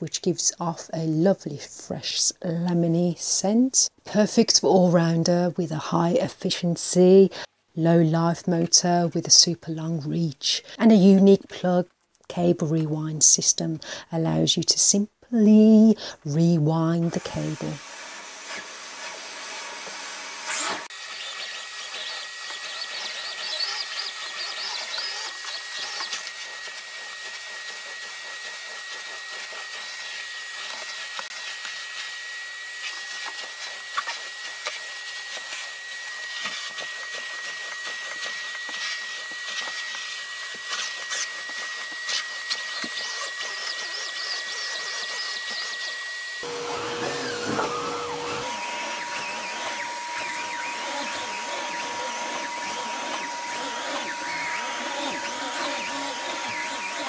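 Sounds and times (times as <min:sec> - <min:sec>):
vacuum cleaner on carpet: 0:16.8 - 0:57.0.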